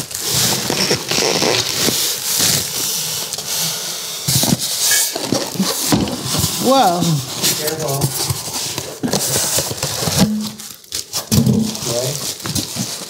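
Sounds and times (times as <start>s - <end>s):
packaging rustling and crackling: 0.0s - 13.0s.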